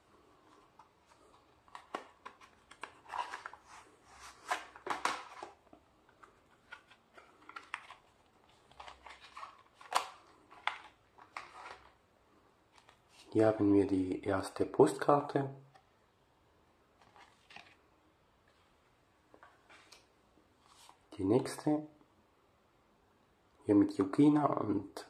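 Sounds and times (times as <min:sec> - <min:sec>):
packaging rustling: 0:00.4 - 0:12.0.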